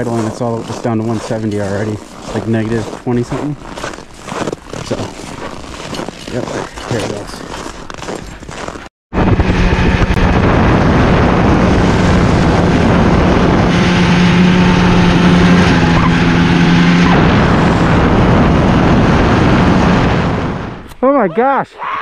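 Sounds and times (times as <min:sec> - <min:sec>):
snowmobile engine droning: 0:00.0 - 0:03.6, 0:04.8 - 0:05.1, 0:09.2 - 0:21.3
snowmobile track noise: 0:00.0 - 0:21.6
wind on microphone: 0:09.1 - 0:21.0.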